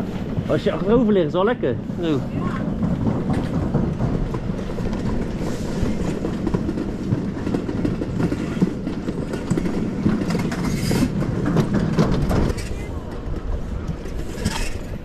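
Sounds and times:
sled rumbling in metal track: 0:00.0 - 0:15.0.

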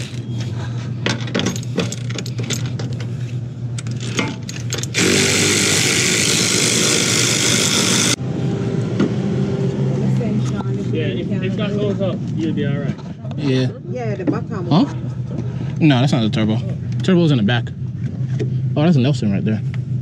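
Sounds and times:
steady low hum: 0:00.0 - 0:20.0
cordless ratchet running: 0:04.7 - 0:08.2.

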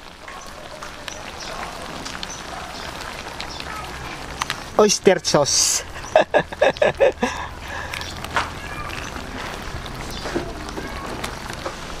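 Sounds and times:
broth bubbling: 0:00.0 - 0:12.0.

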